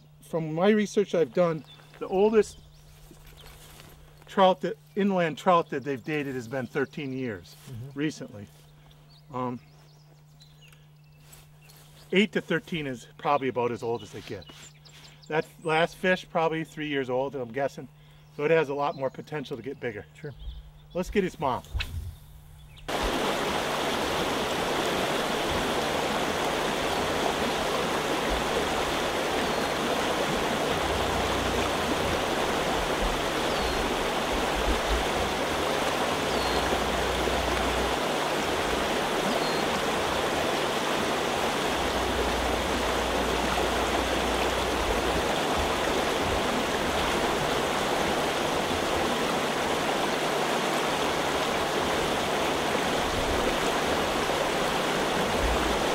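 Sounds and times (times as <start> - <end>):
stream rushing over riffles: 22.9 - 55.9.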